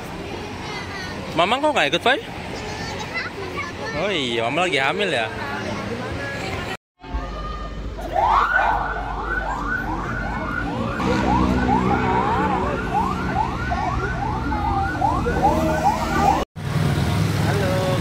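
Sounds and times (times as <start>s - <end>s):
fire truck siren yelping: 8.1s - 16.4s.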